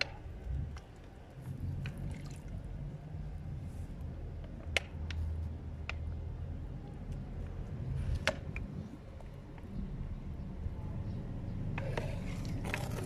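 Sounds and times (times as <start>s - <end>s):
water dripping and soaking: 0.7s - 2.9s.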